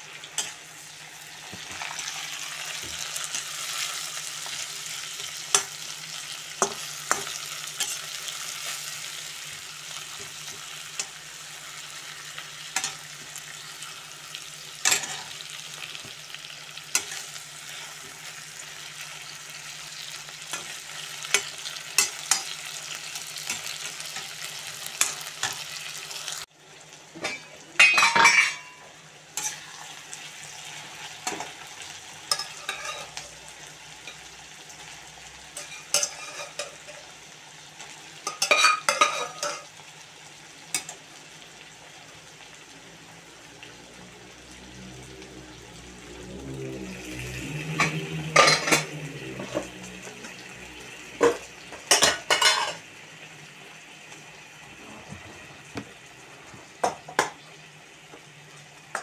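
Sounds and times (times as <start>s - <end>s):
vegetables sizzling in oil: 0.0s - 59.0s
metal spoon scraping wok: 14.8s - 15.6s, 29.4s - 29.9s, 32.3s - 33.4s, 35.6s - 37.0s, 47.1s - 50.5s.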